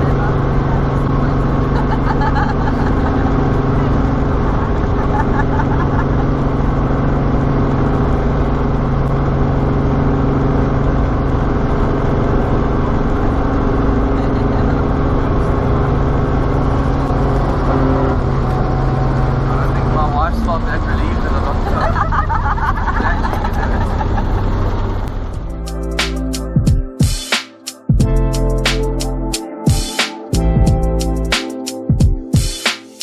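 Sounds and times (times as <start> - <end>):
helicopter engine and rotors: 0.0 - 17.6, 18.2 - 25.4.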